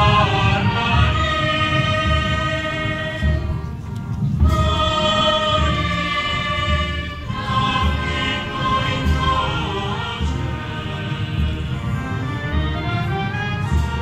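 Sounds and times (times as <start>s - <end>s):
choir singing a hymn: 0.0s - 14.0s
wind band held chords: 0.0s - 14.0s
low drum beat: 4.4s - 12.2s.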